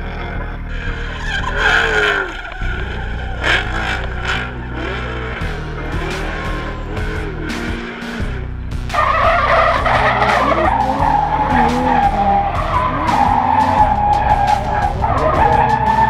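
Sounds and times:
car engine revving: 0.0 - 16.0
tyres squealing: 0.7 - 8.1, 9.0 - 16.0.

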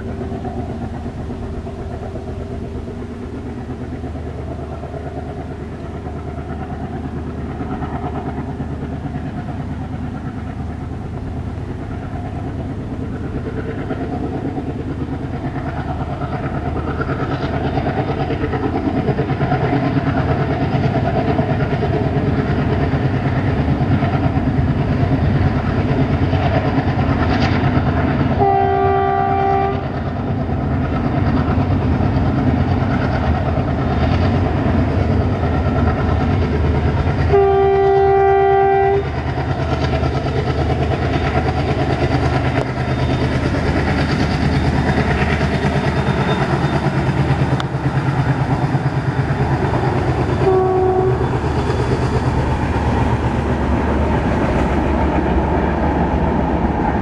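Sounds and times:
diesel locomotive engine rumble: 0.0 - 57.0
wheels on rails: 0.0 - 57.0
locomotive horn: 28.4 - 29.8, 37.3 - 39.1, 50.4 - 51.3.

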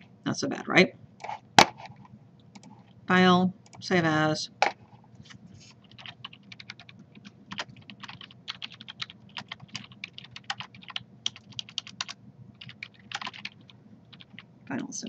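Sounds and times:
computer keyboard typing: 2.6 - 2.8, 5.8 - 14.5.

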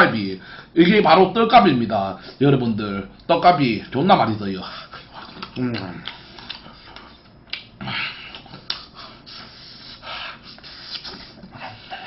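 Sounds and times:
man chewing food: 4.6 - 12.0
man breathing hard through nose: 7.8 - 12.0
snorting breaths: 7.8 - 12.0.

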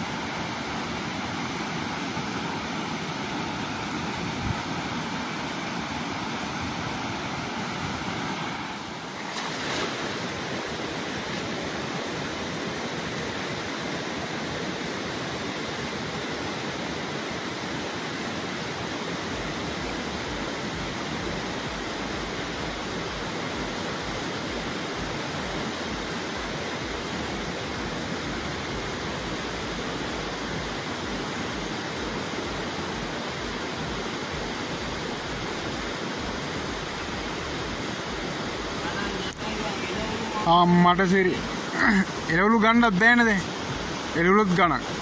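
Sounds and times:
river water rushing: 0.0 - 45.0
wind buffeting microphone: 4.0 - 5.0.

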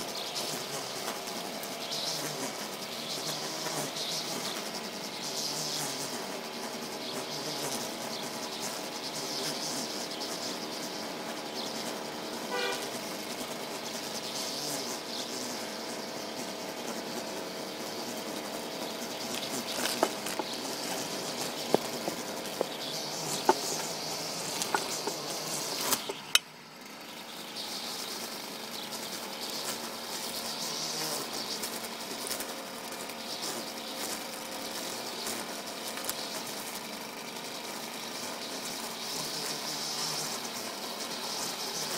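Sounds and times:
string trimmer engine running: 15.7 - 27.7, 31.6 - 39.2.

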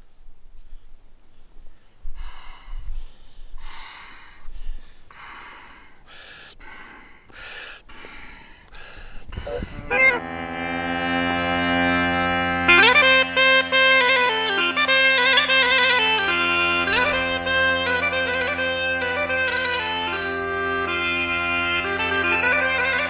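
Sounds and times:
breathy puffs into bagpipe: 0.6 - 10.4
bagpipe drone and chanter: 9.5 - 23.0.

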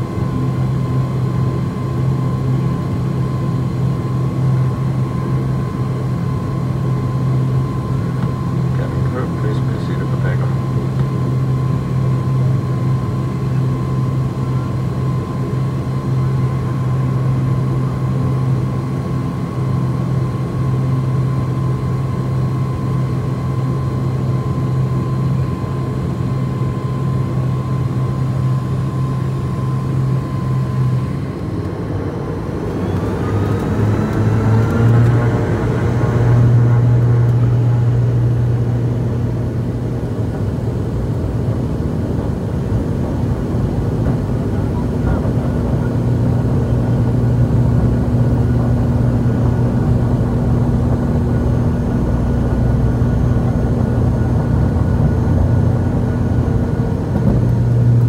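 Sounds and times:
propeller hum with faint whine: 0.0 - 58.0.

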